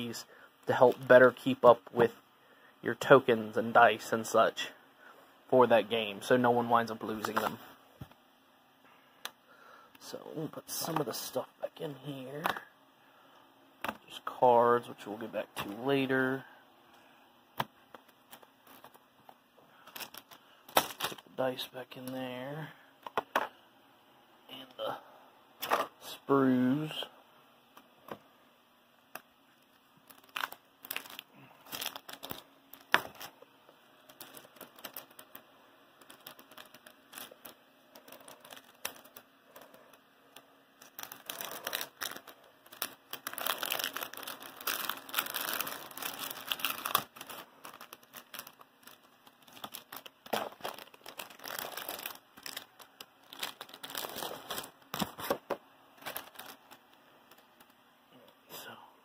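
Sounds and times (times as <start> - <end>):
cellophane shrink-wrap crinkling: 17.9 - 19.1, 19.7 - 21.3, 29.5 - 57.8.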